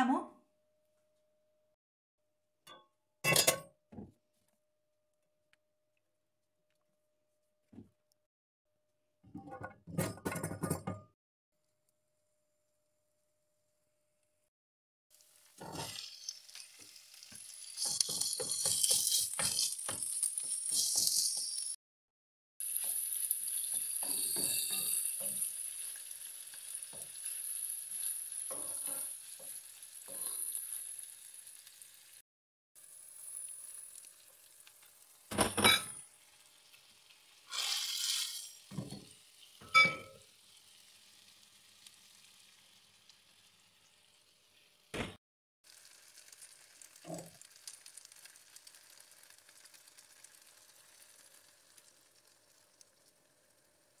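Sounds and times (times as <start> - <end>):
meat sizzling in a frying pan: 15.1 - 21.8, 22.6 - 32.2, 32.8 - 35.3, 36.0 - 44.9, 45.6 - 54.0
wooden spoon scraping a pan: 17.3 - 21.8
rice pouring into pan: 37.5 - 38.7.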